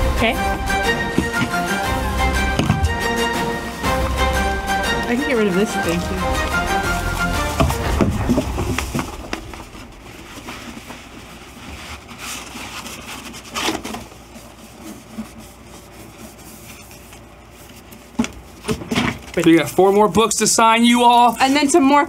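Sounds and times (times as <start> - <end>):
low room noise: 0.0 - 22.0
paper poster rustling: 4.9 - 20.4.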